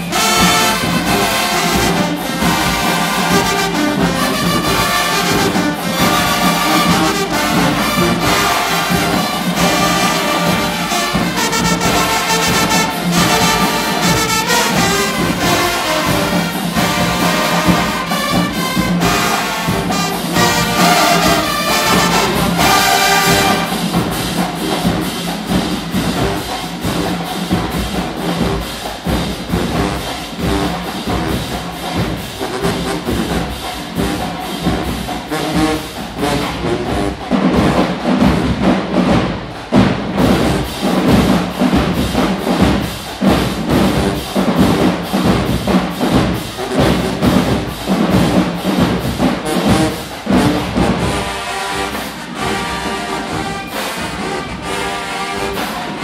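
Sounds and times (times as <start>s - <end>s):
marching band brass playing: 0.0s - 56.0s
steady drum beat: 0.0s - 56.0s.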